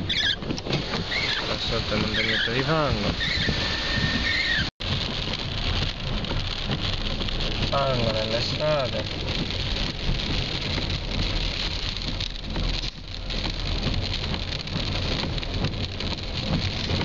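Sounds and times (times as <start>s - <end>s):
rain and wet tyres hissing: 0.0s - 17.0s.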